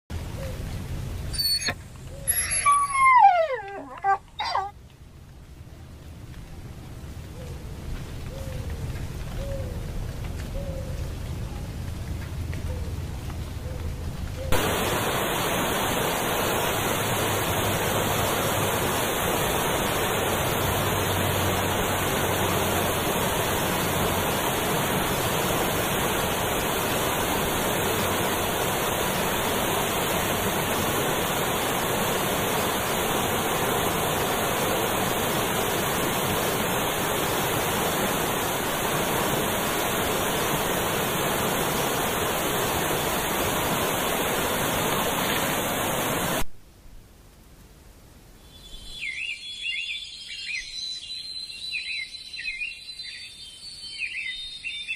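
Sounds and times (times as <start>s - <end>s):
steady rushing noise: 14.5s - 46.5s.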